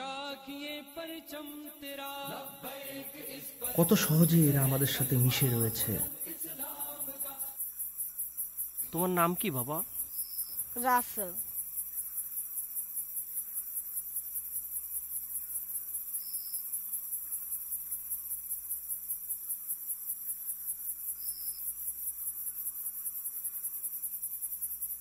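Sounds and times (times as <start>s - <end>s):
crickets chirping: 0.0s - 25.0s.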